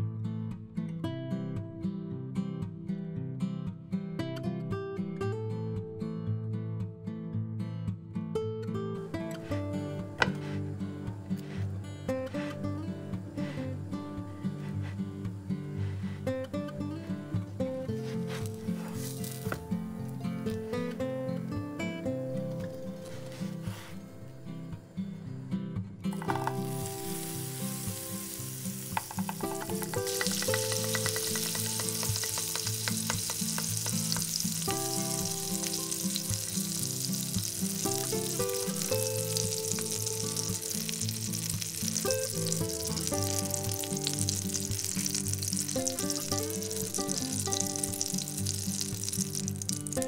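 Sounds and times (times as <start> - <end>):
background music: 7.9 - 50.0
butter sizzling in a frying pan: 9.2 - 11.7, 12.3 - 21.0, 22.4 - 23.9, 26.2 - 50.0.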